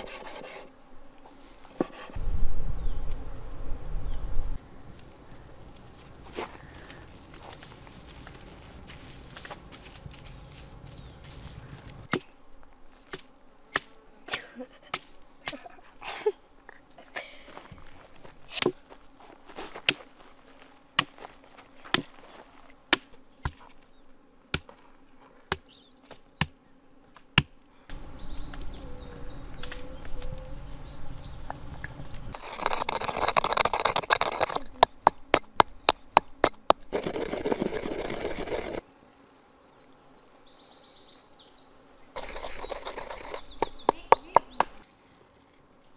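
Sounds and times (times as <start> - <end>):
birds chirping faintly: 0.0 - 5.7, 9.5 - 12.4, 21.4 - 45.7.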